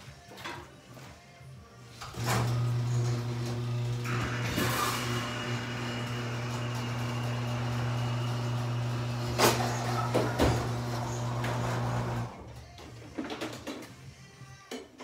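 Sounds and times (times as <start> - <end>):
welder arc buzzing: 2.2 - 12.3.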